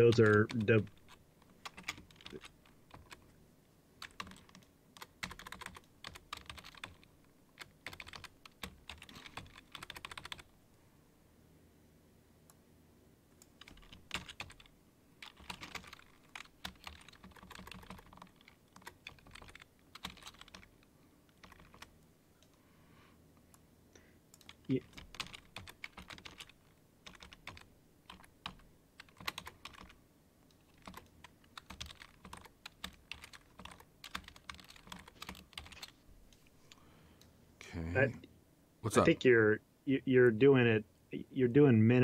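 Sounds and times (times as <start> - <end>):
faint keyboard typing: 0.0 - 3.4, 4.0 - 10.6, 13.4 - 22.6, 23.4 - 37.3.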